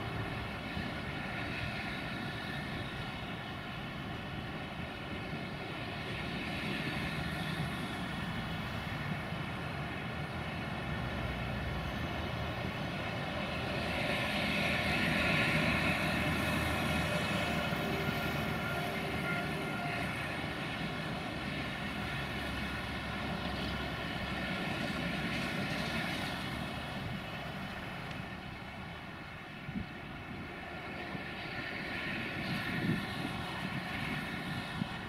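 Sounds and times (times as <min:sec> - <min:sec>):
diesel locomotive engine drone: 0:00.0 - 0:35.0.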